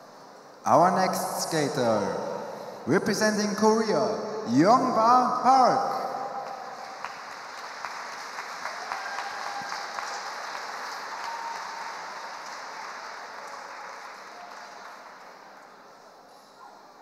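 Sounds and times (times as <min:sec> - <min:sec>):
audience applauding: 0:06.4 - 0:16.2.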